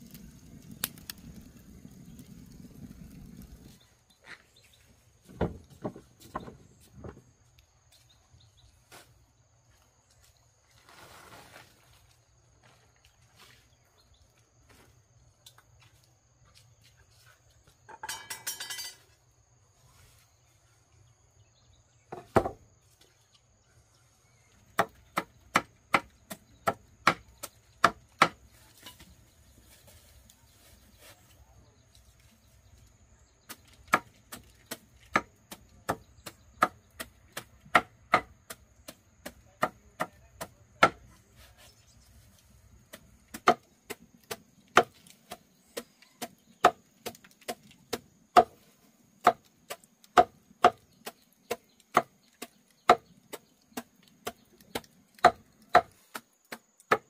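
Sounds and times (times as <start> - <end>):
rustling: 10.6 - 12.2.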